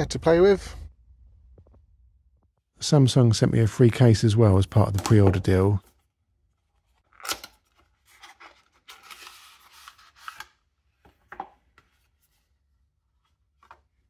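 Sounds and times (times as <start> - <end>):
packaging rustling and sliding: 7.8 - 10.5.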